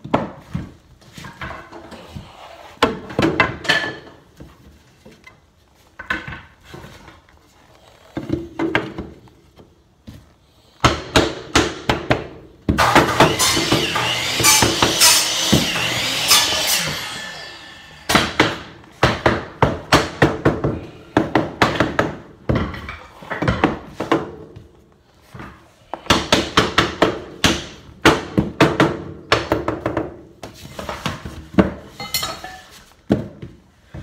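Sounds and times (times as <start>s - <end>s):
hammering on hardwood floorboards: 10.8s - 16.5s, 18.1s - 22.8s, 26.0s - 30.3s.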